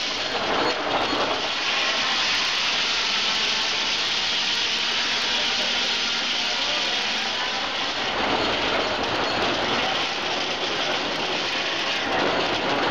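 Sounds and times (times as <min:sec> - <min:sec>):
sawmill saw hissing: 0:00.0 - 0:09.0.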